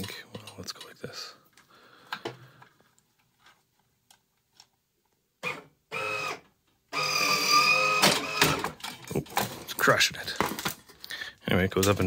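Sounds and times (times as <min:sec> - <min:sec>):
electric actuator motor whining: 0:05.4 - 0:08.7.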